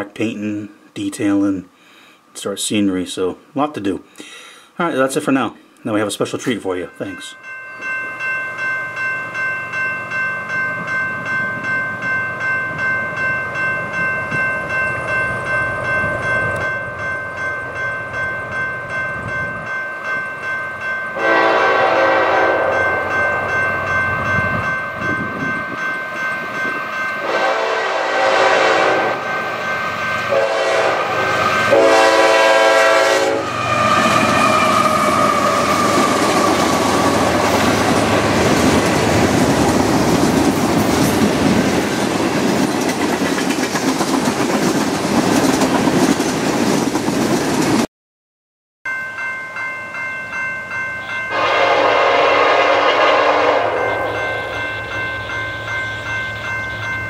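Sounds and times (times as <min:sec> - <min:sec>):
locomotive air horn: 0:21.2 - 0:23.1, 0:27.2 - 0:29.6, 0:30.2 - 0:37.0, 0:51.3 - 0:54.5
freight train wheel clatter: 0:33.9 - 0:47.8.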